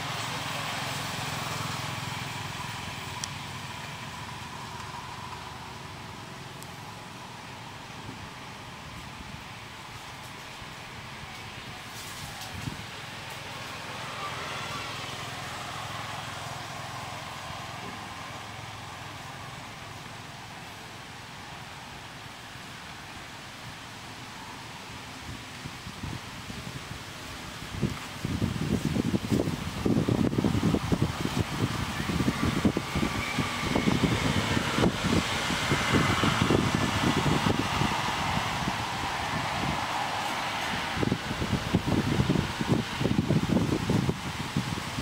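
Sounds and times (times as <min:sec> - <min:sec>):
steady outdoor hiss: 0:00.0 - 0:45.0
wind buffeting microphone: 0:07.6 - 0:20.5, 0:25.2 - 0:45.0.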